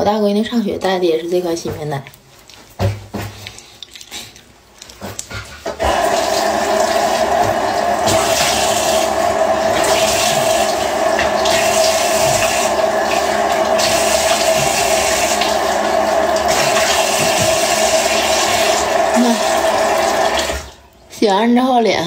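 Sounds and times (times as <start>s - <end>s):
water splashing on face: 2.5s - 20.8s
tap water running into sink: 4.8s - 20.8s.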